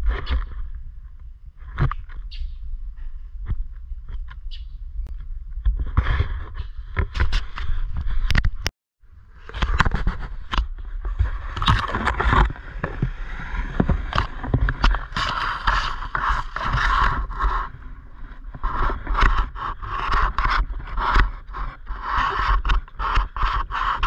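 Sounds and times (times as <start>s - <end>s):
low microphone rumble: 2.5s - 22.2s
leaves and twigs rustling: 9.8s - 23.9s.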